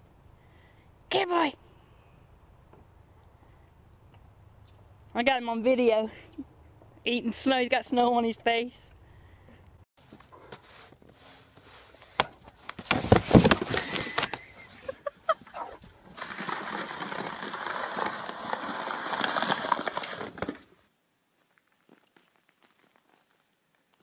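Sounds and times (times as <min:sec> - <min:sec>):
snow shovel scraping asphalt: 0:10.0 - 0:20.8.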